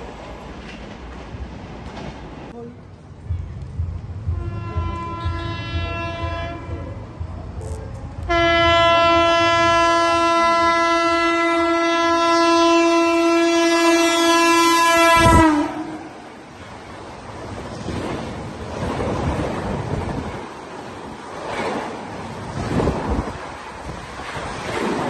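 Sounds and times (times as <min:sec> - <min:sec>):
train horn blasts: 0:04.3 - 0:16.2.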